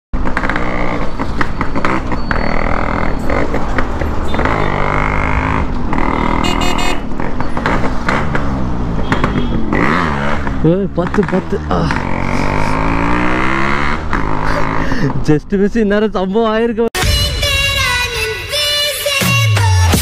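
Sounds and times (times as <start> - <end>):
crackly popping exhaust: 0.2 - 2.6
motorcycle engine revving: 0.2 - 15.3.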